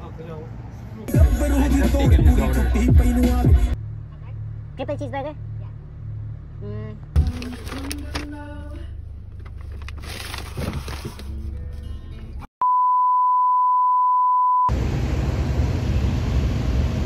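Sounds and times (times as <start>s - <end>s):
street traffic noise: 0.0s - 12.5s
low rumble inside a car: 6.6s - 12.4s
rustling: 9.2s - 11.7s
steady electronic beep tone: 12.6s - 14.7s.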